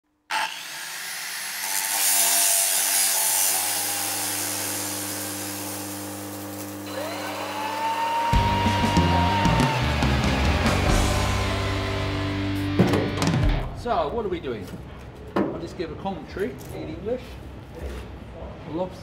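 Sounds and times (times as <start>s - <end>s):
angle grinder whine: 3.1s - 12.7s.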